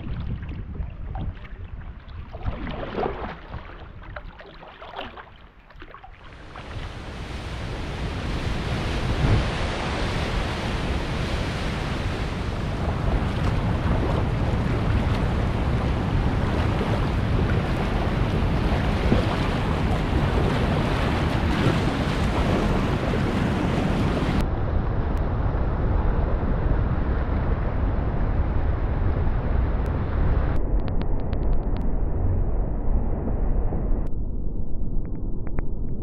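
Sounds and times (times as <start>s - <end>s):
rushing whitewater: 6.4s - 24.4s.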